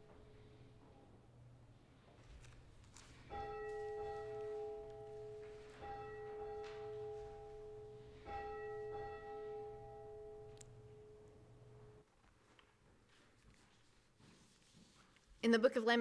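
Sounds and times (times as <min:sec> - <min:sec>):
bell ringing: 0:03.3 - 0:12.0.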